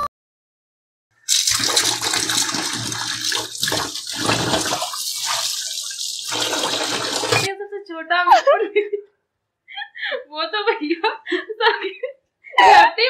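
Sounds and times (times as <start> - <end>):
water splashing over dishes: 1.2 - 7.5
tap running into steel sink: 6.6 - 7.5.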